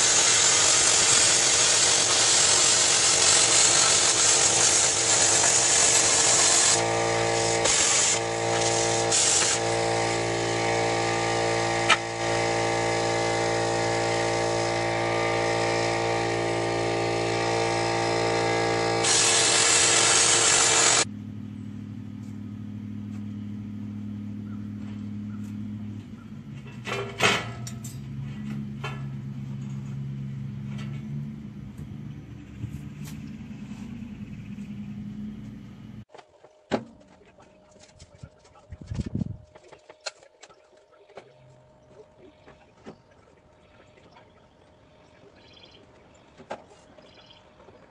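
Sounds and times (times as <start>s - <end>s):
cutting torch hissing: 0.0s - 21.1s
motor hum: 0.0s - 47.9s.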